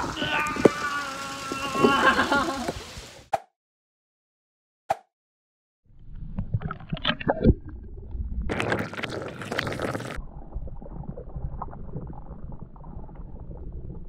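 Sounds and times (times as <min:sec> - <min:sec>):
splashing into water: 0:00.0 - 0:03.1
muffled underwater gurgling rumble: 0:06.0 - 0:14.0.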